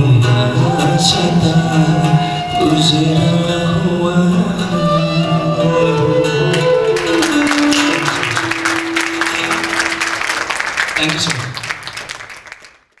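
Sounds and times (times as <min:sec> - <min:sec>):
man singing held note: 0:00.0 - 0:08.5
sustained instrument note: 0:00.0 - 0:10.6
instrumental accompaniment: 0:00.0 - 0:11.2
audience applause: 0:06.5 - 0:13.0.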